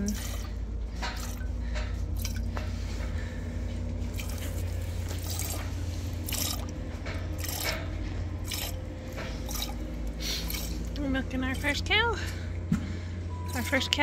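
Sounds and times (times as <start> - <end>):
steady low hum: 0.0 - 14.0
milk squirting into metal pot: 4.1 - 7.8, 8.4 - 8.8, 9.4 - 9.8, 10.4 - 10.9.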